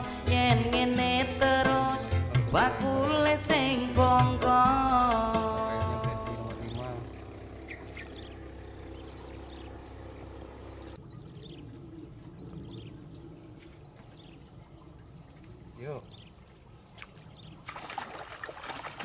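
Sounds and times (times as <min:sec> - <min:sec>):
small birds chirping: 0:04.6 - 0:17.7.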